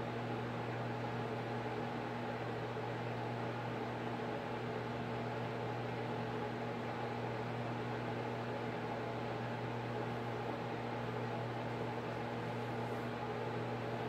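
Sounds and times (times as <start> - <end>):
appliance hum with tones: 0.0 - 14.0.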